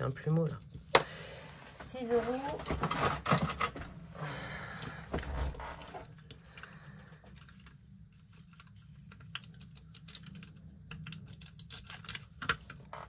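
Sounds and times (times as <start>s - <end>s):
coins and paper clicks and rustles: 7.3s - 12.8s.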